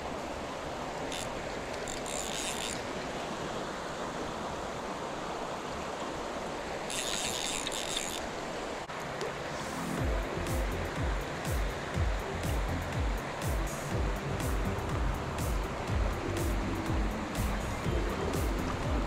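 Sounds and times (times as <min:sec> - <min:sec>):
flowing creek water: 0:00.0 - 0:19.0
music with low bass notes: 0:09.7 - 0:19.0.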